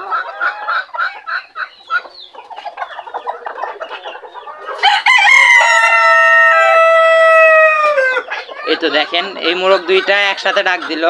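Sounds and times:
hens clucking: 0:00.0 - 0:11.0
roosters crowing: 0:03.0 - 0:10.1.

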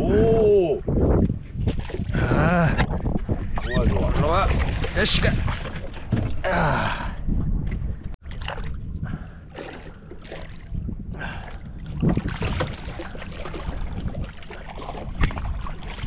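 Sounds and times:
wind rumbling on microphone: 0:00.0 - 0:16.0
water sloshing around boat: 0:02.8 - 0:06.5, 0:07.6 - 0:16.0.

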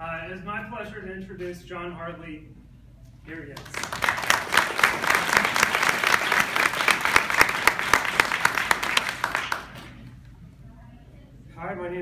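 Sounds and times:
loud individual claps: 0:03.6 - 0:10.2
small audience applauding: 0:03.6 - 0:10.2.

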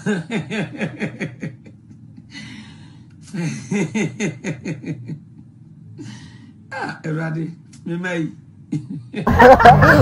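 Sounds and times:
people laughing: 0:08.8 - 0:10.0.

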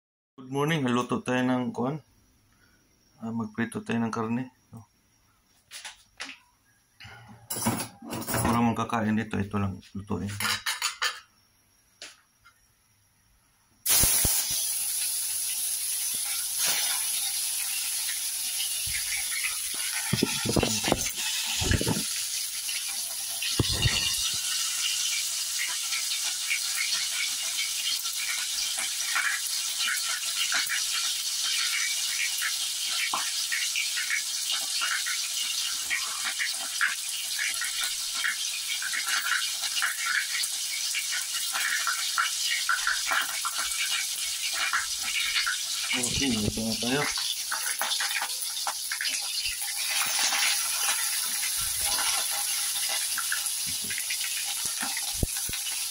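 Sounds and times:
meat sizzling in hot oil: 0:13.8 - 0:55.9.

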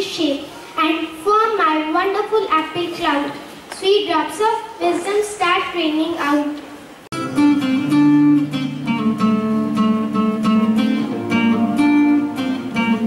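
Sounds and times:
acoustic guitar picking: 0:07.1 - 0:13.0.

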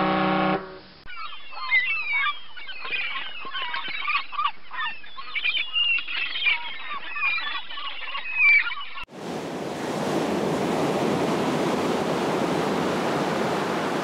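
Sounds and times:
flock of birds calling: 0:01.1 - 0:09.0.

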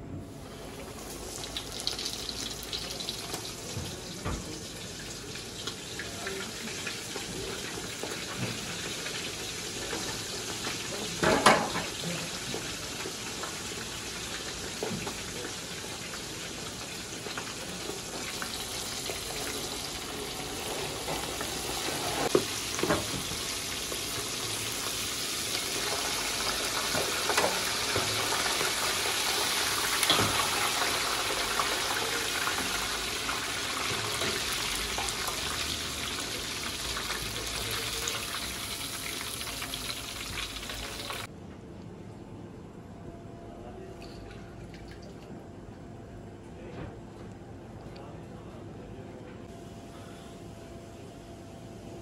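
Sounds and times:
food deep-frying in oil: 0:00.4 - 0:41.3.

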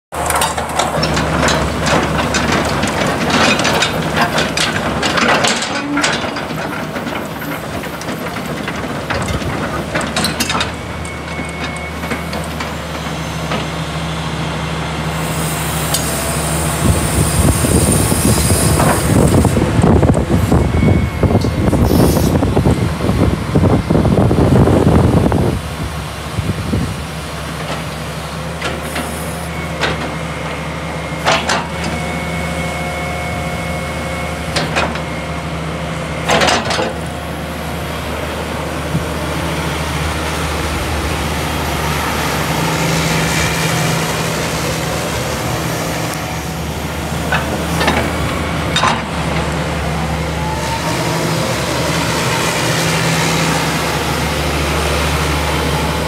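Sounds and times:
excavator diesel engine running: 0:00.1 - 0:56.0
machine clunks: 0:00.2 - 0:13.7, 0:36.2 - 0:37.0.

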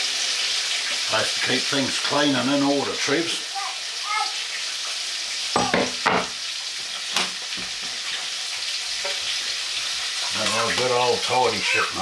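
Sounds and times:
food sizzling in a frying pan: 0:00.0 - 0:12.0
chopping board knocking: 0:05.6 - 0:06.4.

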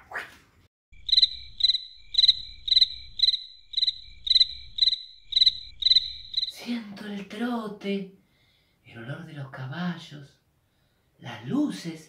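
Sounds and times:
cricket chirping: 0:01.0 - 0:06.6.

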